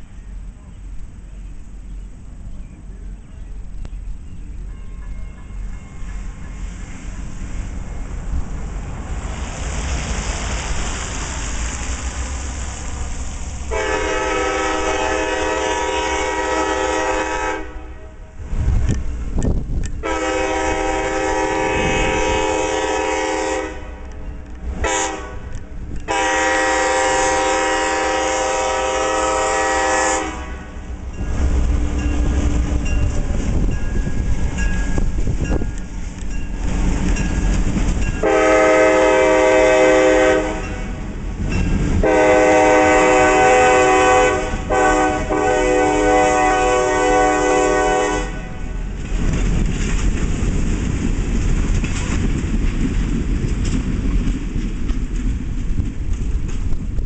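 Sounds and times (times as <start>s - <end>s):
diesel engines rumbling: 0.0s - 57.0s
locomotive air horn: 13.7s - 18.4s, 20.0s - 24.2s, 24.8s - 30.9s, 38.2s - 41.1s, 42.0s - 48.9s.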